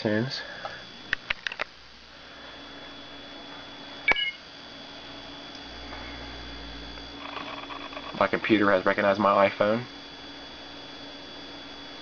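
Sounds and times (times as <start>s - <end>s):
faint steady hum: 0.0s - 12.0s
high whine: 0.0s - 12.0s
short high electronic beep: 4.1s - 4.4s.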